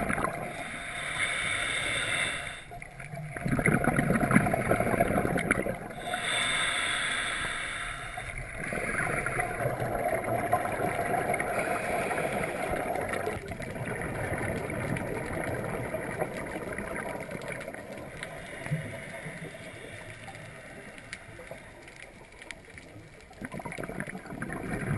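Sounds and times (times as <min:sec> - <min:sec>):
bubbling exhale underwater: 0:00.0 - 0:00.7, 0:03.0 - 0:06.3, 0:08.3 - 0:19.4, 0:23.3 - 0:24.9
regulator hissing inhale: 0:00.4 - 0:02.9, 0:05.9 - 0:09.1, 0:11.5 - 0:13.0, 0:18.3 - 0:21.8.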